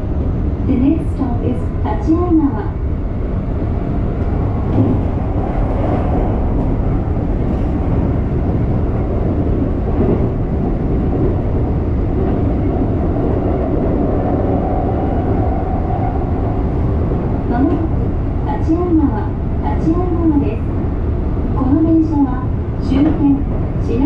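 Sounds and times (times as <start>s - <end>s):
train wheels rumbling on rail: 0.0s - 24.0s.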